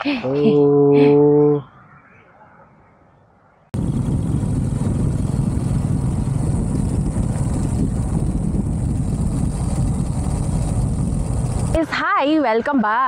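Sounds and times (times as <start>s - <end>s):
wind rushing over microphone: 3.7s - 12.4s
motorcycle low rumble: 3.8s - 12.0s.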